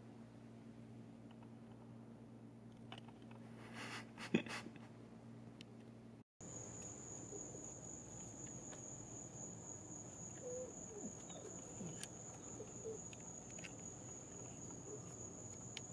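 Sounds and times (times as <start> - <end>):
crickets trilling: 6.4 - 15.9.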